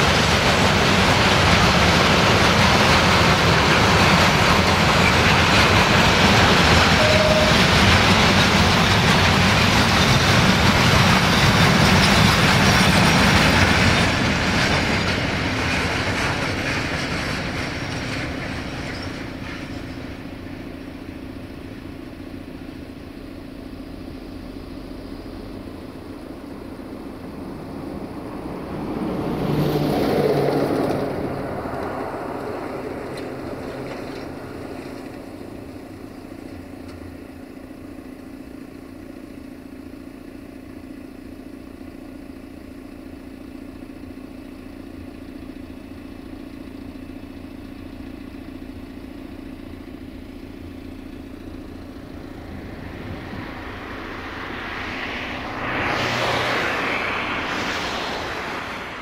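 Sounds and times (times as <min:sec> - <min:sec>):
rushing noise: 0:00.0 - 0:20.9, 0:50.2 - 0:59.0
freight train wagons rolling: 0:00.0 - 0:21.8, 0:29.4 - 0:37.2
low engine hum: 0:00.0 - 0:59.0.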